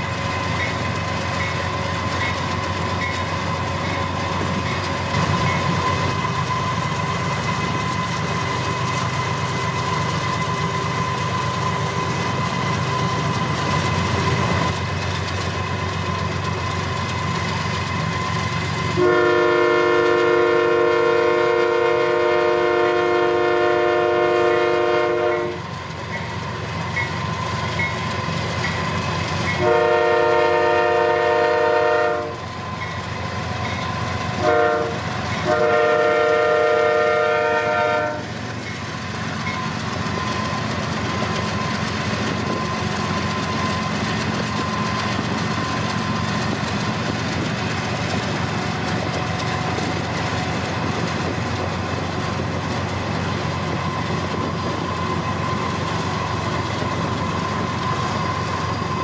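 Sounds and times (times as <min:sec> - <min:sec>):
moving train rumble: 0:00.0 - 0:59.0
locomotive air horn: 0:19.0 - 0:25.7, 0:29.6 - 0:32.5, 0:34.3 - 0:38.4.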